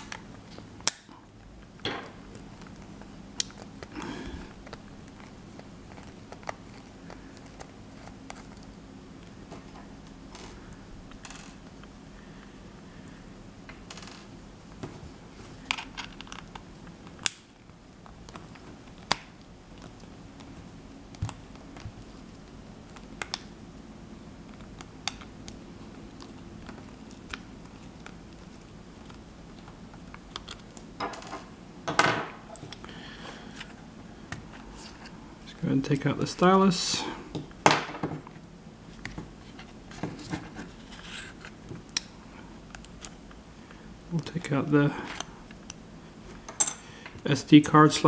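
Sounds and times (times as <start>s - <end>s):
tools set down on wooden table: 31.0s - 32.4s.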